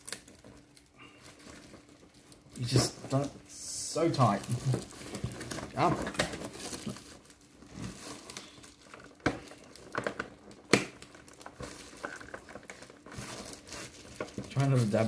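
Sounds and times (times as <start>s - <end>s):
packing tape pulled: 0.0s - 3.3s, 4.2s - 15.0s.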